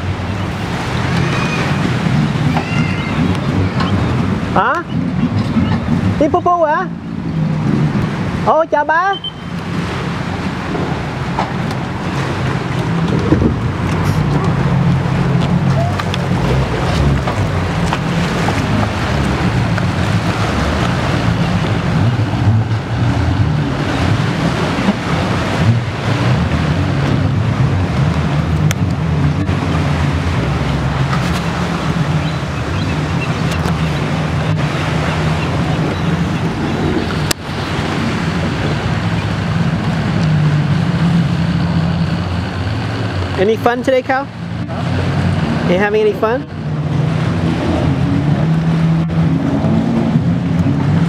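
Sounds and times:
boat engine running: 0.0s - 51.0s
water rushing past hull: 0.0s - 51.0s
wind buffeting microphone: 9.6s - 43.4s.

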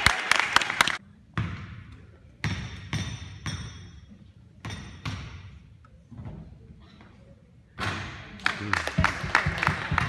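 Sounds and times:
basketball bouncing: 1.3s - 4.0s, 4.6s - 5.6s.

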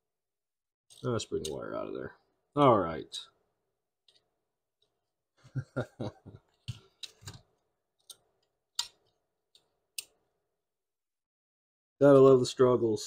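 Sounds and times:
clicks of handling wires and tools: 0.9s - 1.6s, 4.0s - 5.0s, 6.5s - 10.2s.

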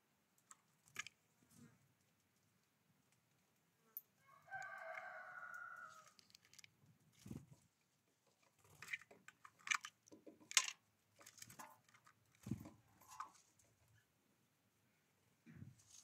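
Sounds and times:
birds clicking on wooden feeder: 0.4s - 1.2s, 4.4s - 7.6s, 8.3s - 13.7s
rooster crowing: 4.2s - 6.2s.

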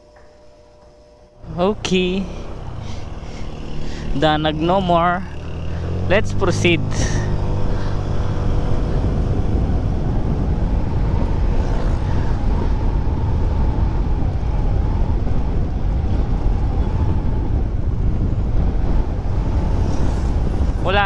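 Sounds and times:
scooter engine running: 1.4s - 12.8s
wind buffeting microphone: 1.4s - 21.0s.

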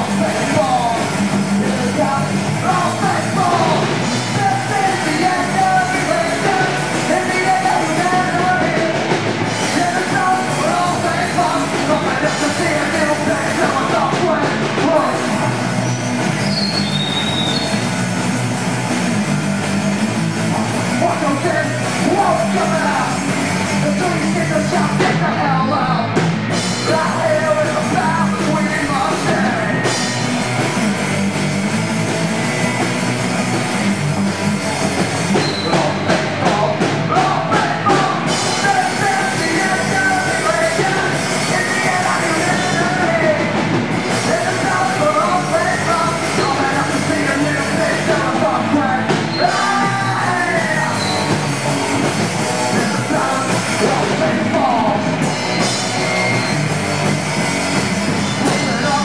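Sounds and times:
person singing: 0.0s - 15.6s, 26.8s - 30.0s, 35.3s - 55.3s, 58.4s - 59.0s
bass guitar: 0.0s - 59.0s
drum kit: 0.0s - 59.0s
electric guitar: 0.0s - 59.0s.

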